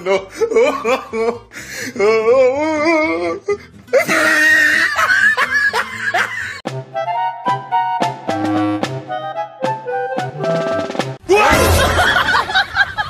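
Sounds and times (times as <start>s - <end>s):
laughter: 0.0s - 1.4s, 4.0s - 6.6s, 11.5s - 13.0s
music with held notes: 6.7s - 11.2s.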